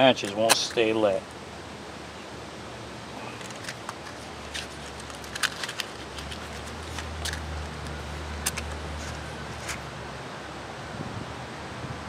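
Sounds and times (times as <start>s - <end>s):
matches striking on matchbox: 0.2s - 0.9s, 3.4s - 9.9s
wind rumble on microphone: 10.8s - 12.0s.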